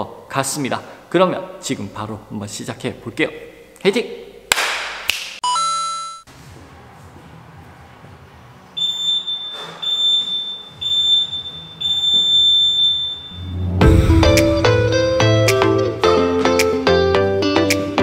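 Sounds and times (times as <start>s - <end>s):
faint background music: 6.3s - 12.6s
timer beeps: 8.8s - 13.8s
short chiming tone: 12.7s - 14.5s.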